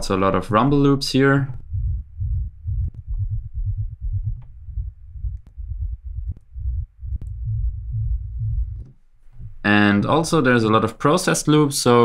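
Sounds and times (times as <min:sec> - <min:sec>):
pulsing low bass rumble: 0:01.5 - 0:09.7.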